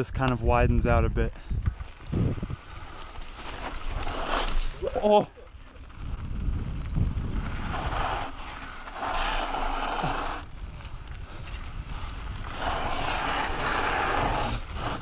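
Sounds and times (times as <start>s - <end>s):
wind rumble on microphone: 0.0s - 15.0s
tyres crunching over gritty ground: 1.2s - 15.0s.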